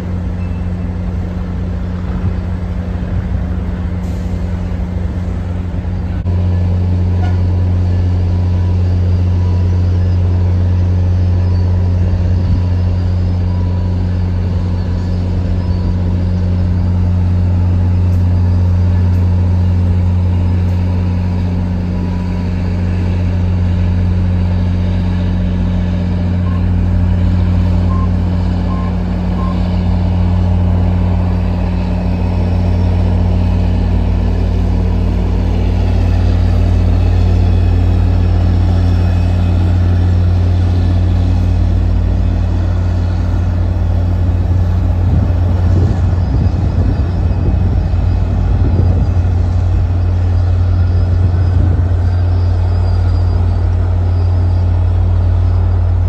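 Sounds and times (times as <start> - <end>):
diesel locomotive idling: 0.0 - 56.0
short beeps: 0.4 - 0.8, 26.4 - 26.8, 27.8 - 29.9.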